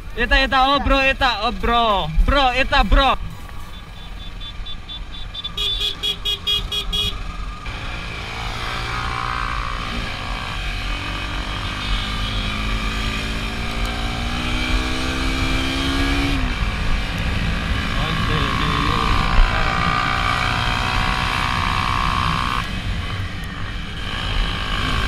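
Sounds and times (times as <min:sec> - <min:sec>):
motorcycle engine accelerating: 0:07.0 - 0:25.0.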